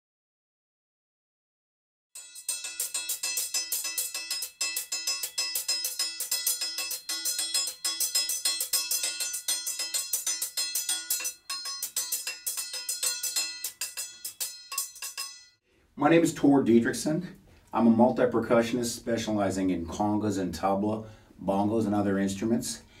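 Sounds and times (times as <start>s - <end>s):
metallic clangs and jingling: 2.2s - 15.6s.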